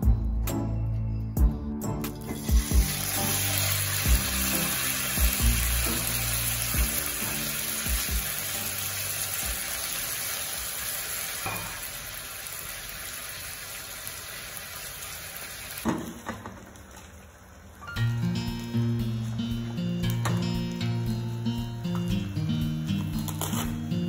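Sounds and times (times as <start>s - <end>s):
fish sizzling in a wok: 2.2s - 21.7s
knock on pan: 11.4s - 11.9s, 15.8s - 16.6s
light guitar music: 17.8s - 24.0s.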